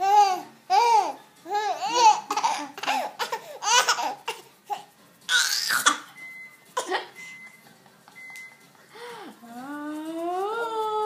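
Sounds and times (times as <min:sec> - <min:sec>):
baby laughing: 0:00.0 - 0:06.1.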